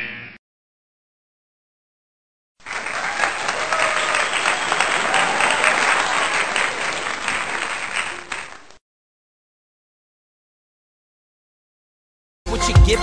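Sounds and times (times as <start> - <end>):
crowd applauding: 2.6 - 8.8
voices: 2.7 - 8.8.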